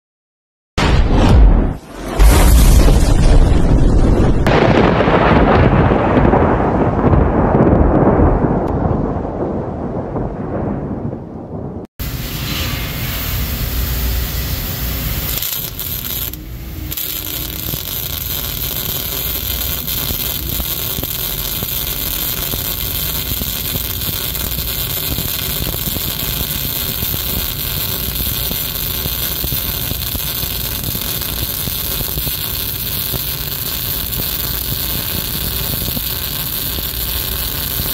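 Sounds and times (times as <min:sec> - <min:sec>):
deep boom: 0:00.8 - 0:14.0
welding arc crackling: 0:12.0 - 0:37.9.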